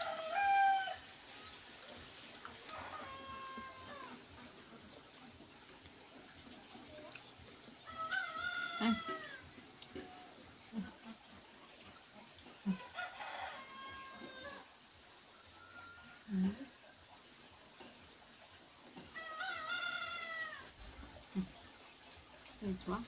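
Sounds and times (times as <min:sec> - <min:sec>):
rooster crowing: 0:00.0 - 0:01.1, 0:02.7 - 0:04.2, 0:07.8 - 0:09.4, 0:12.7 - 0:14.7, 0:19.1 - 0:20.7.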